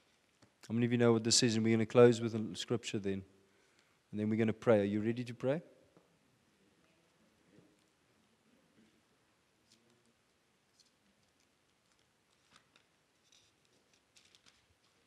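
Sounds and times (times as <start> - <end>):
pages being leafed through: 10.7 - 15.0.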